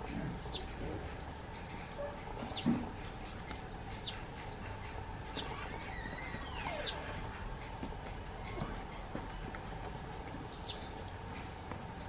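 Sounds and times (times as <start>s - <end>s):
small bird chirping: 0.4s - 0.7s, 3.6s - 4.6s, 5.2s - 7.0s, 10.4s - 11.2s.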